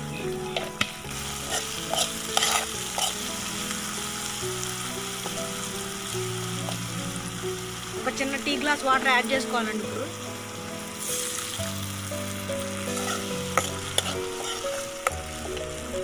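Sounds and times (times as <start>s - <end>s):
onions sizzling in a pan: 0.0s - 16.0s
spoon scraping a pan: 1.4s - 3.2s, 12.8s - 15.6s.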